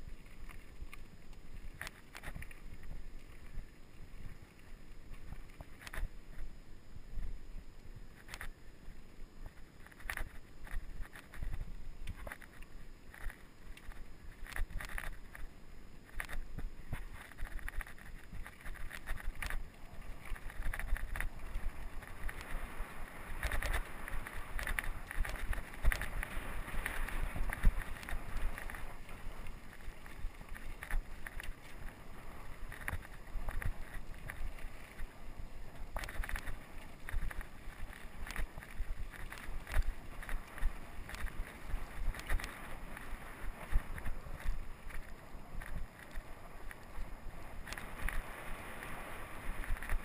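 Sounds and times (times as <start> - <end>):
bike tyres on trail: 0.0 - 50.0
wind on microphone: 16.2 - 50.0.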